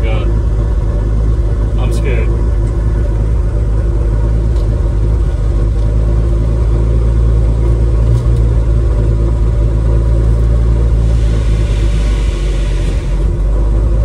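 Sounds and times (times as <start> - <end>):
truck engine running: 0.0 - 14.0
loud rushing noise: 10.9 - 13.4.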